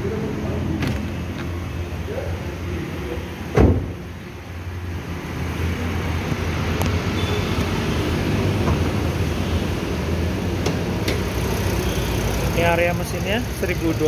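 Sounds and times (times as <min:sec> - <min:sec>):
car door shutting: 0:03.5 - 0:04.0
car engine idling: 0:09.8 - 0:14.0.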